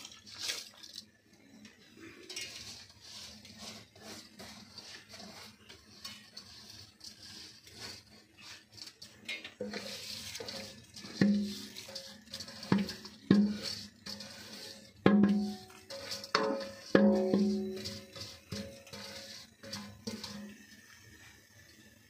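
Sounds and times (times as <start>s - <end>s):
soft hiss: 0.0s - 22.0s
steel bowl knocking on pot rim: 11.0s - 20.6s.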